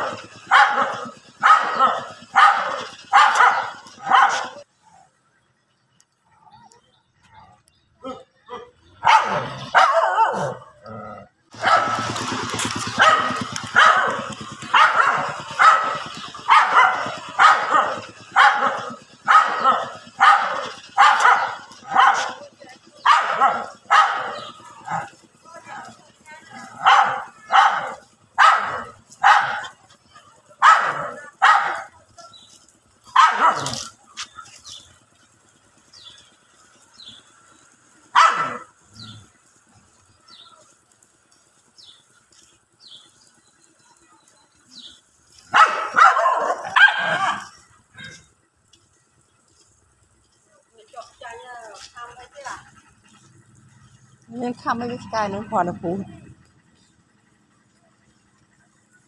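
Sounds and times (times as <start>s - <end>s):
dogs barking aggressively: 0.0s - 4.7s, 8.0s - 43.4s, 44.7s - 48.4s
low rough rumble: 8.9s - 59.0s.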